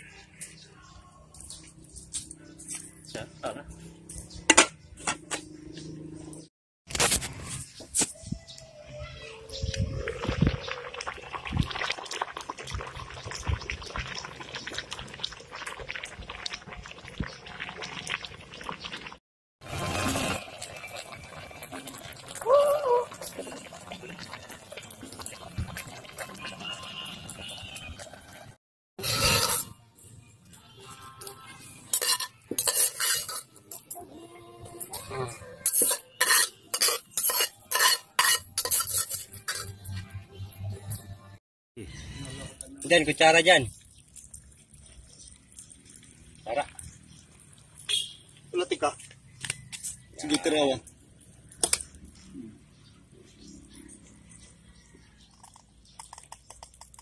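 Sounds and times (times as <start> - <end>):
water boiling and bubbling: 9.9 - 30.4, 42.5 - 49.4, 50.0 - 57.0
metal spoon clinking on pot: 31.9 - 33.9, 35.7 - 39.8.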